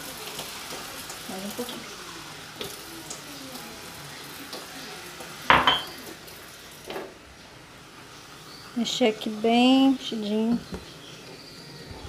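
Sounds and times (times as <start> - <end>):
chicken sizzling in pan: 0.0 - 11.9
metal pan clanking: 5.5 - 6.0.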